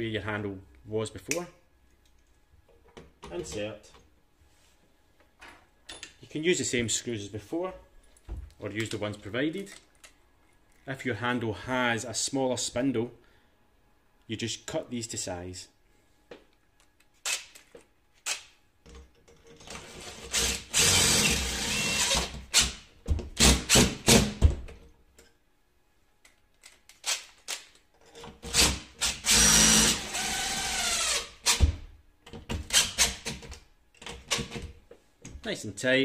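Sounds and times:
drill driving screws: 19.7 - 22.8, 28.4 - 31.7.

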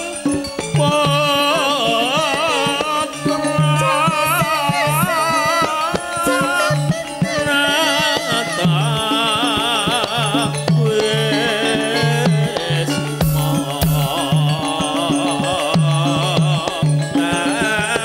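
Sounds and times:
woman singing with vibrato: 1.7 - 9.1
quick hand-drum strokes: 13.2 - 14.8.

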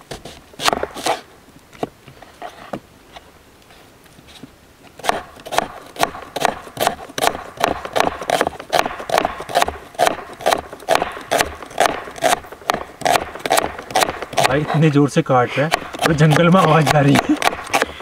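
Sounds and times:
knife chopping on wooden board: 0.1 - 1.2, 5.0 - 14.8, 15.7 - 18.0.

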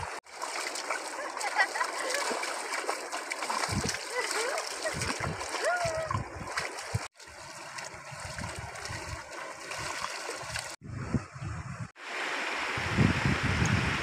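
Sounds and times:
river running over stones: 0.0 - 10.8
water splashing: 0.0 - 10.8.

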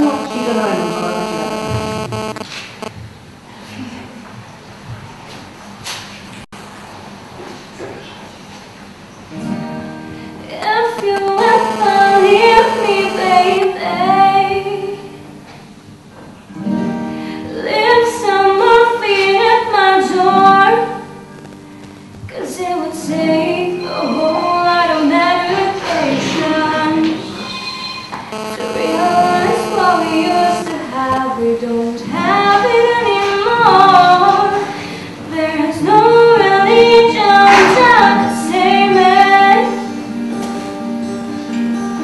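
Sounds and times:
woman singing: 28.8 - 34.7, 35.3 - 39.8.

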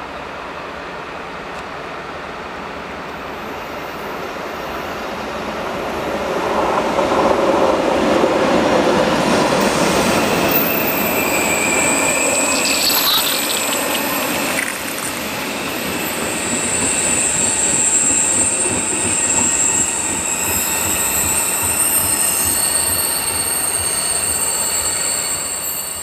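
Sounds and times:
train wheels squealing: 3.0 - 26.0
train rumble: 5.6 - 26.0.

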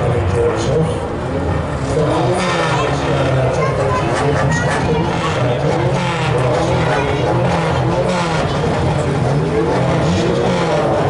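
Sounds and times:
racing car engines revving: 0.0 - 11.0.

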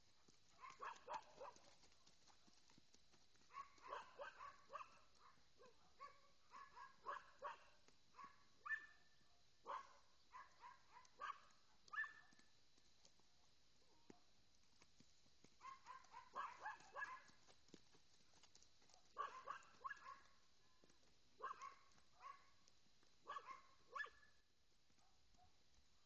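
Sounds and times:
dog barking: 0.6 - 1.7, 3.5 - 12.3, 15.6 - 17.4, 19.0 - 20.4, 21.4 - 22.6, 23.3 - 24.3.

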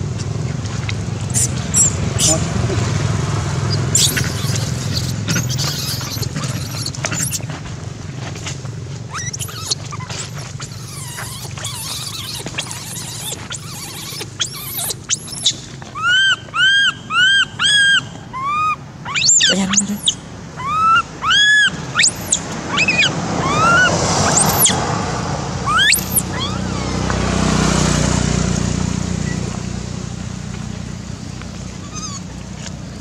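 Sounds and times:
baby monkey screaming: 1.3 - 2.7, 3.7 - 7.5, 9.1 - 24.9, 25.6 - 27.1, 31.7 - 32.3.

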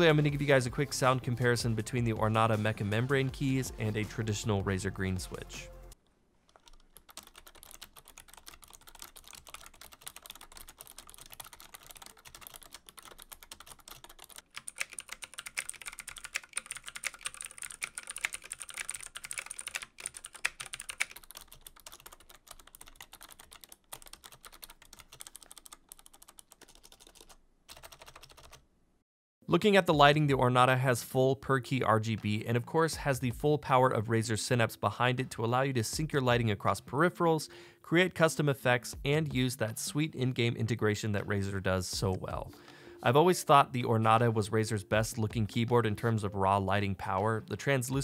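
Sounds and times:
soft keyboard typing: 6.0 - 28.6
clicky mechanical keyboard typing: 6.5 - 28.6.

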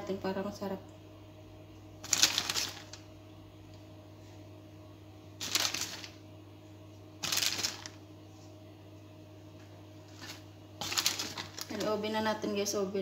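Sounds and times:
low steady hum: 0.0 - 13.0
shredded cheese rustling: 2.0 - 3.0, 5.4 - 6.2, 7.2 - 8.0, 10.1 - 12.0.

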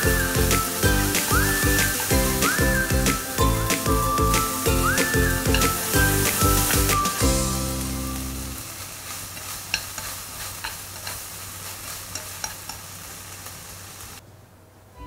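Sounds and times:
food sizzling in a wok: 0.0 - 14.2
chopsticks clicking on pan: 12.1 - 12.8.

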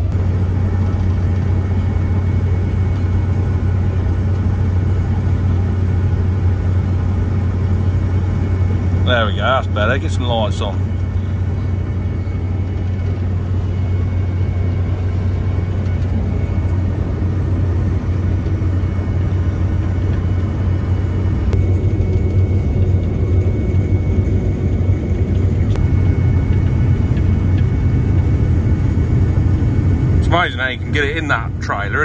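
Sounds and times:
combine harvester droning: 0.0 - 32.0
thin high whine: 6.6 - 32.0.

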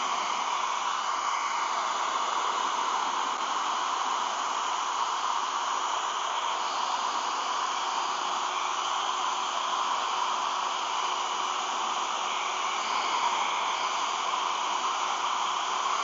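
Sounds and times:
hot-air blower rushing hiss: 0.0 - 16.0.

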